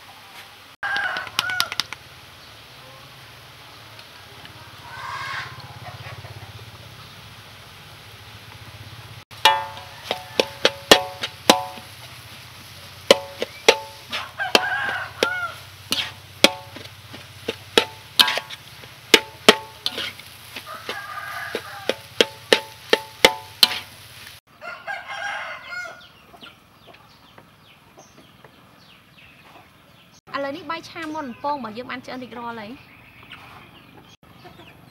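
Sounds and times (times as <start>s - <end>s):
hens clucking: 4.8s - 6.6s
metal spatula scraping wok: 9.4s - 24.3s.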